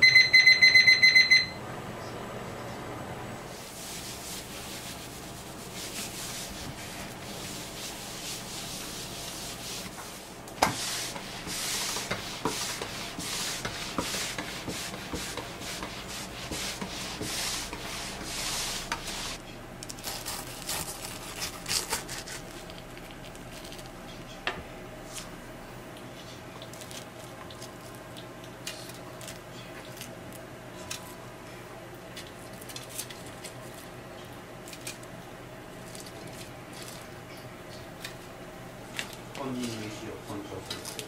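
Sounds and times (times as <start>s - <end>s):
mop rubbing on wooden floor: 3.5s - 19.4s.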